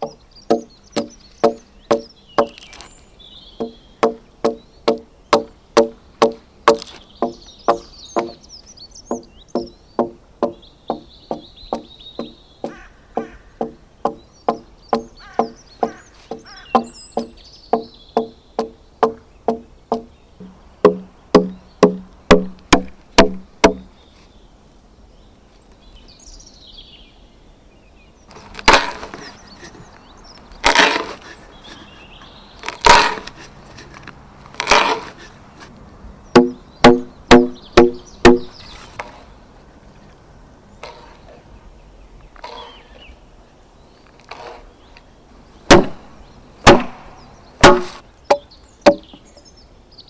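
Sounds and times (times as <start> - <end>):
axe chopping into a log: 0.0 - 2.9, 3.6 - 8.4, 9.1 - 23.9, 28.4 - 29.3, 30.6 - 31.2, 32.6 - 33.4, 34.6 - 35.2, 36.4 - 39.1, 45.7 - 46.0, 46.6 - 49.1.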